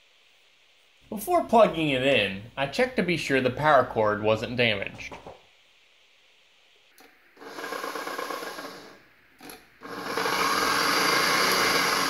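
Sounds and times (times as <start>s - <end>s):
stand mixer motor running: 7.4s - 9.0s, 9.8s - 12.0s.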